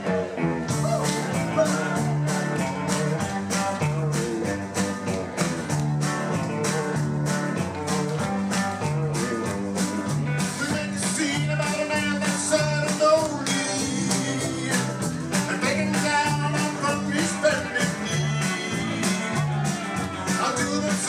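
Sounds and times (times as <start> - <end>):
bouncing bass line: 0.0 - 21.0
rock band playing: 0.0 - 21.0
lead vocal singing: 0.8 - 2.9, 10.4 - 21.0.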